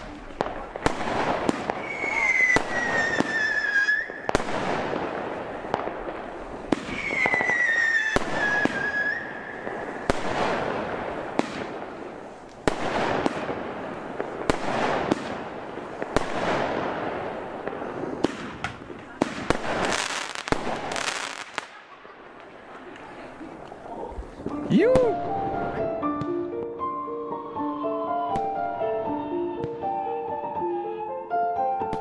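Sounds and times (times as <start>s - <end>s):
crackling firework bursts: 0.0s - 25.2s
firework whistles falling in pitch: 1.8s - 4.4s, 6.8s - 10.1s.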